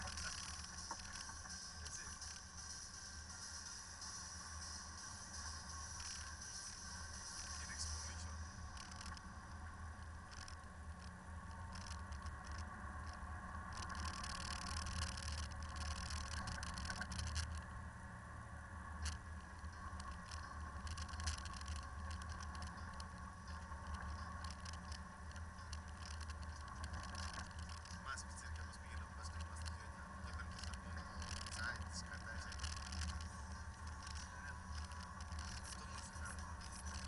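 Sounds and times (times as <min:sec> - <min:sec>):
small rattles: 0:00.0 - 0:17.8, 0:19.0 - 0:37.0
tyres crackling on snow and gravel: 0:00.0 - 0:17.9, 0:18.8 - 0:37.0
low engine drone: 0:00.0 - 0:37.0.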